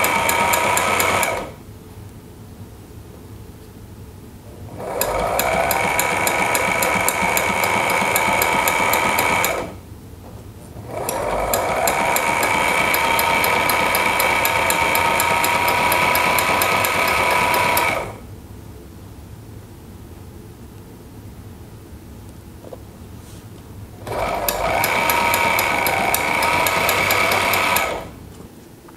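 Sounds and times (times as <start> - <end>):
sewing machine stitching clicks: 0.0 - 1.5, 4.8 - 9.8, 10.9 - 18.2, 24.0 - 28.1
sewing machine motor whine: 0.0 - 1.6, 4.6 - 9.8, 10.8 - 18.2, 24.0 - 28.2.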